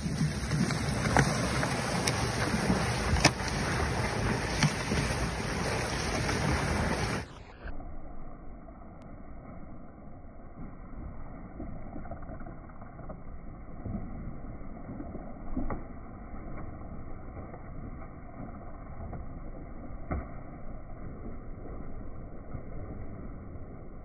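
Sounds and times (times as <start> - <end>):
water gushing from pipe: 0.0 - 7.3.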